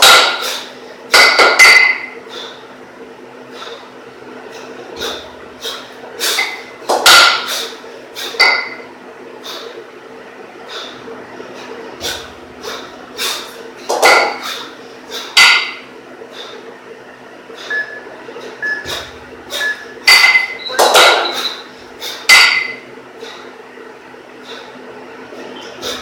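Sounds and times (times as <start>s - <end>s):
kettlebells clanking together: 1.2s - 2.1s, 6.4s - 7.5s, 8.4s - 8.8s, 13.9s - 14.6s, 20.0s - 21.6s, 22.3s - 22.8s.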